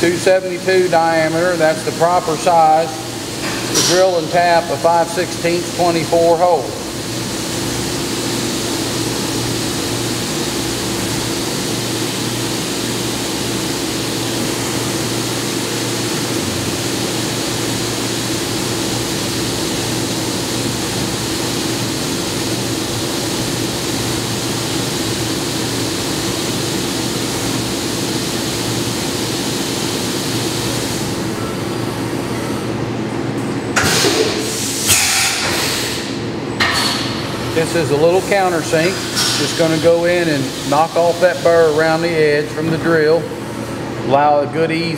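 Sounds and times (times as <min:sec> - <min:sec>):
coolant spray hissing: 0:00.0 - 0:31.2, 0:37.0 - 0:43.6.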